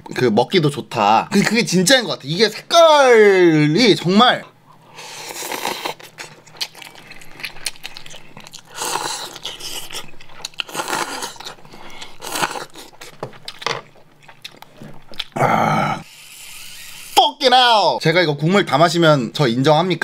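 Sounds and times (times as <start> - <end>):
chewing: 4.7 - 15.4
person slurping noodles: 5.0 - 6.1.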